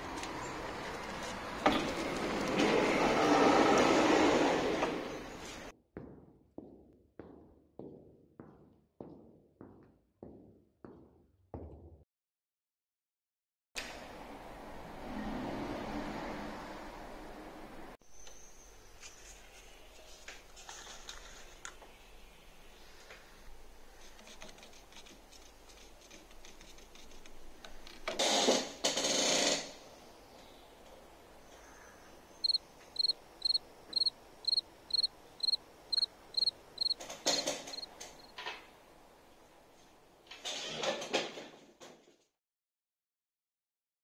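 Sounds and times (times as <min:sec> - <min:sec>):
short high electronic beeps: 0:32.4 - 0:37.0.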